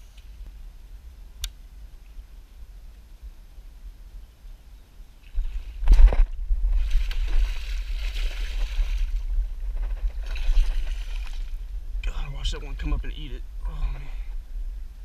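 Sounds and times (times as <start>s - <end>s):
low rumble on microphone: 0.0s - 15.0s
fish thrashing in water: 5.9s - 9.3s, 9.9s - 11.6s.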